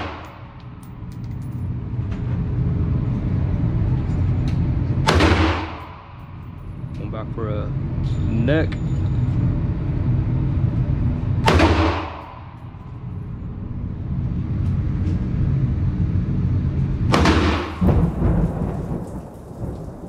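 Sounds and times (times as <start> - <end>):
steady low rumble: 0.0 - 20.0
rifle shot ringing indoors: 5.1 - 6.5, 11.4 - 12.8.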